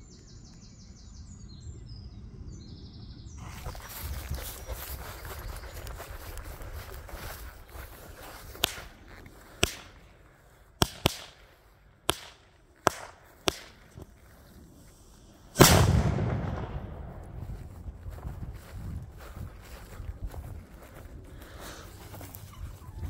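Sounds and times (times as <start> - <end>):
jumping jack firecracker cracks: 8.5 - 9.0, 9.6 - 10.1, 10.8 - 14.0, 15.6 - 17.1
loud firecracker blast: 15.5 - 17.8.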